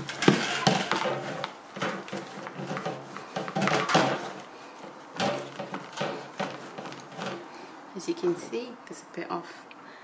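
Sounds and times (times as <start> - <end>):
fan cage rattling on table: 0.0 - 7.5.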